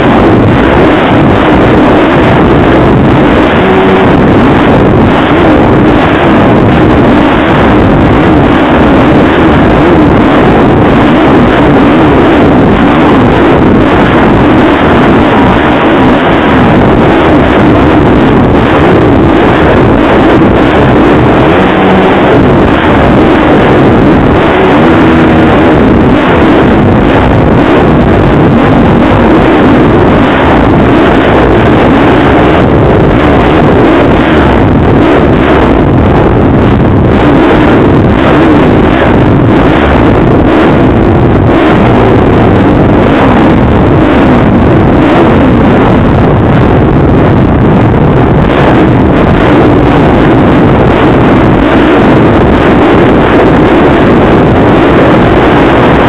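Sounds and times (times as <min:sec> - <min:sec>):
motocross bike engine running: 0:00.0 - 0:44.2
wind on microphone: 0:00.0 - 0:56.0.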